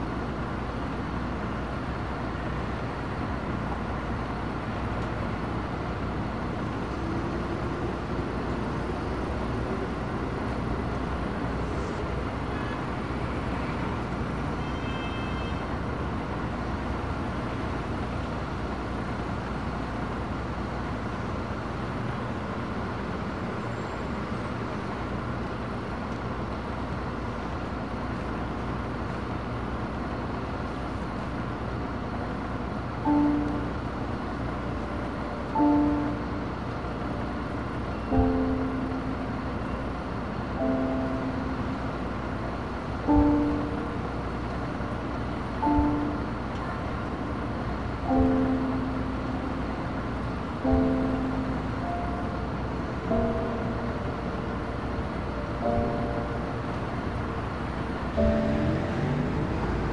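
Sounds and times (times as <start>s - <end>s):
bus engine rumble: 0.0s - 59.9s
road noise: 0.0s - 59.9s
faint rising whine: 48.0s - 59.9s.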